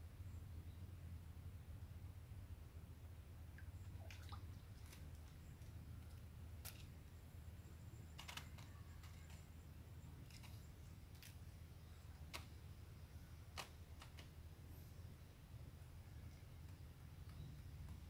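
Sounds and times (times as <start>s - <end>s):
low steady hum: 0.0s - 18.0s
faint clicks and handling noise: 3.6s - 14.6s, 15.6s - 18.0s.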